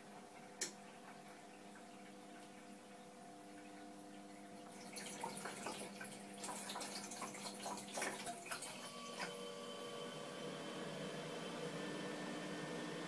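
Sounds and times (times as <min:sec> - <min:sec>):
water splashing and trickling: 0:01.0 - 0:09.3
ice maker humming: 0:04.7 - 0:13.0.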